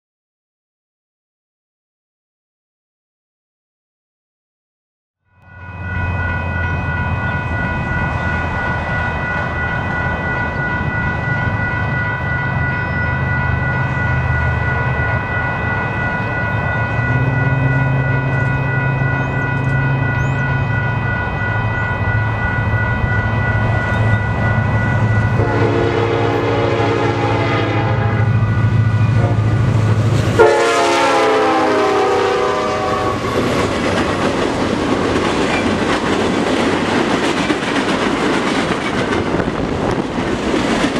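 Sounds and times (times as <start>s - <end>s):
high-pitched ringing: 5.3s - 33.5s
train air horn: 17.1s - 20.1s, 25.4s - 28.4s, 29.1s - 29.6s, 30.4s - 33.4s
train wheels clattering on rails: 33.2s - 40.9s.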